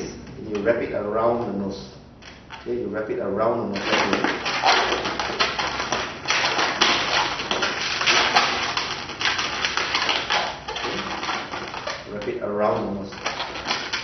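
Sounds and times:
balloons rubbing and squeaking: 3.7 - 14.0.

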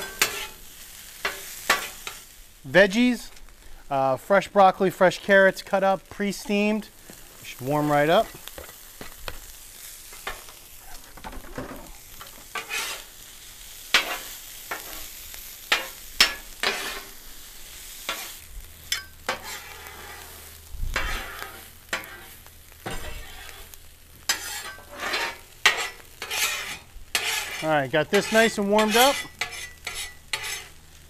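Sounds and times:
metal spatulas scraping griddle: 0.0 - 2.3, 10.1 - 13.2, 13.9 - 17.2, 18.0 - 30.8
food sizzling in oil: 0.0 - 31.0.

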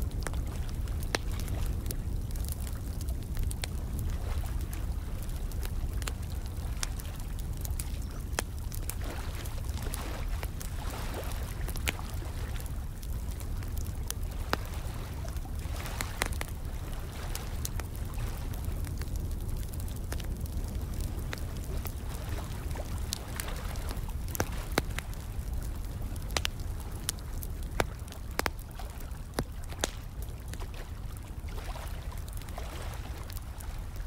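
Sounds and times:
fire crackling and popping: 0.0 - 34.0.

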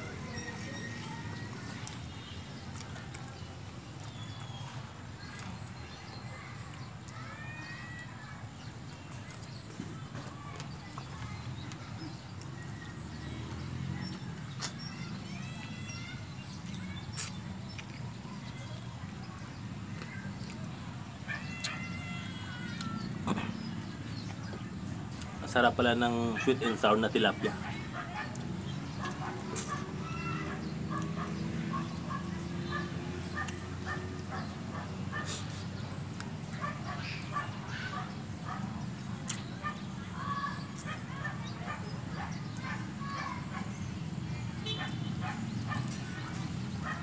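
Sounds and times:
soft chewing and mouth sounds: 16.5 - 20.8.

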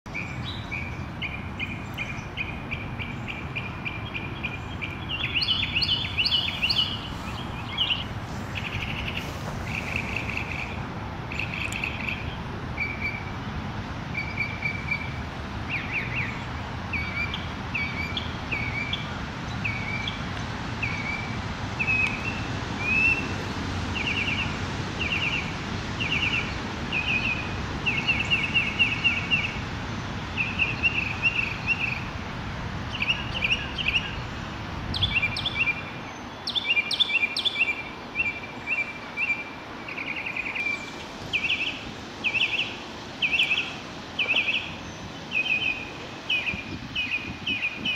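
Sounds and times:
mockingbird singing: 0.1 - 13.2, 34.9 - 47.9
rain hiss: 0.1 - 47.9.

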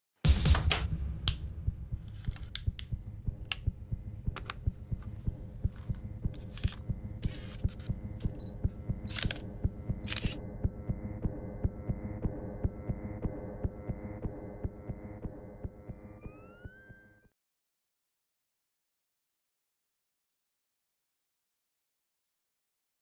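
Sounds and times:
low throbbing drone: 0.3 - 17.3
camera shutter clicks: 6.4 - 10.4.

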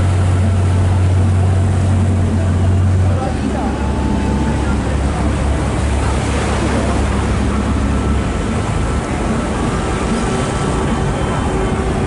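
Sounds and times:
boat engine rumbling: 0.0 - 12.0
wind and water rushing: 0.0 - 12.0.

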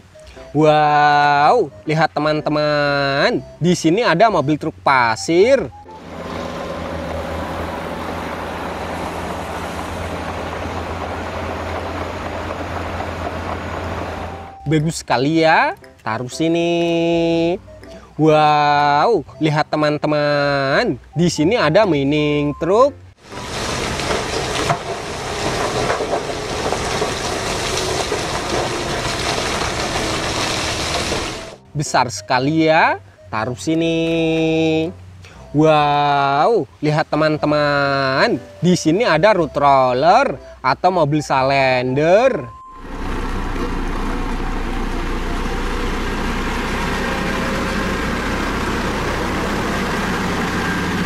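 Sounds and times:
diesel truck engine running: 5.7 - 16.0, 21.0 - 31.8, 42.5 - 51.0
rock sliding and falling: 23.2 - 31.6
sand pouring onto ground: 23.2 - 31.6.

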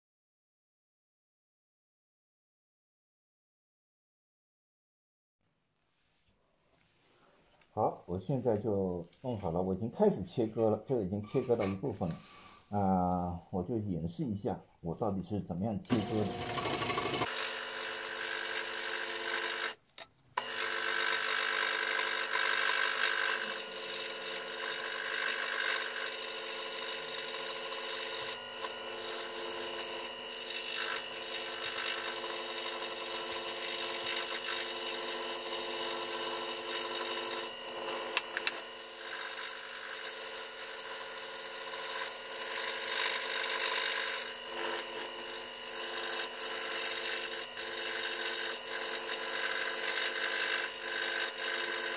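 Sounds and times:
scroll saw cutting wood: 10.6 - 12.7, 15.9 - 51.9.

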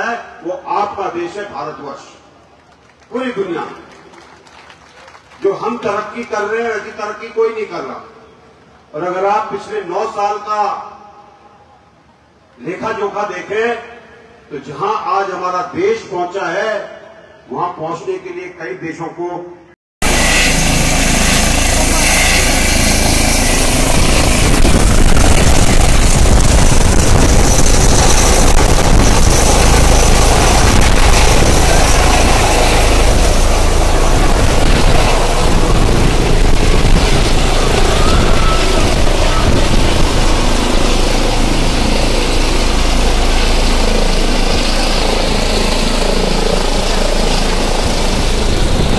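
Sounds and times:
helicopter rotor and engines winding up: 20.0 - 48.9.

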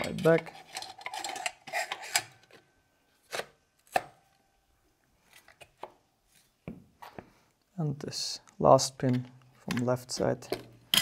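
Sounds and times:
plastic parts clacking: 0.0 - 2.7, 8.9 - 11.0.

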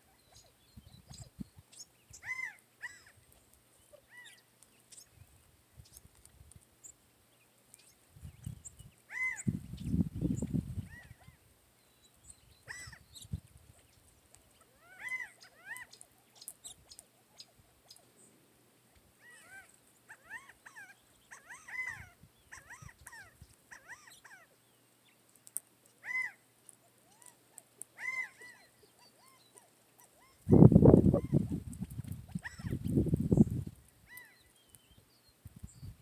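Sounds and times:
small birds chirping: 0.0 - 36.0
quail calling: 2.1 - 3.2, 9.1 - 9.6, 10.8 - 11.4, 12.6 - 13.3, 14.6 - 18.1, 19.2 - 24.6, 26.0 - 26.4, 28.0 - 31.6, 32.3 - 33.0.

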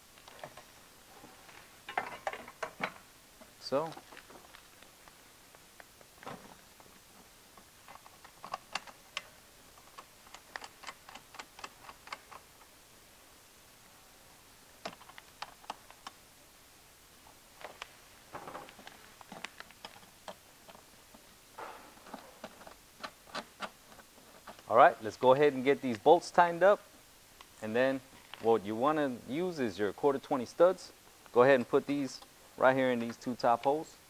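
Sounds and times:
parts clicking and tapping: 7.6 - 12.5, 14.8 - 16.2.

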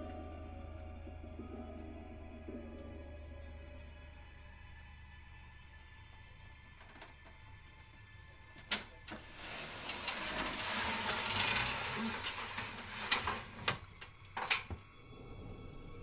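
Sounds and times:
ladder sliding scrape: 9.2 - 13.8.

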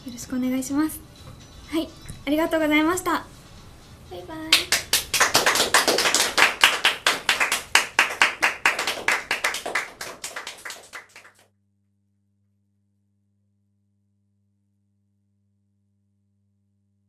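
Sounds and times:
hands clapping: 4.5 - 11.4.

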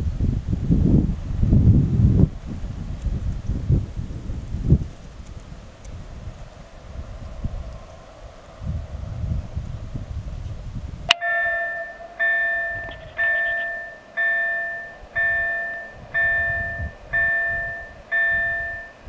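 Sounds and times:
wind on microphone: 0.0 - 19.0
level-crossing warning bell ringing: 11.1 - 19.0.

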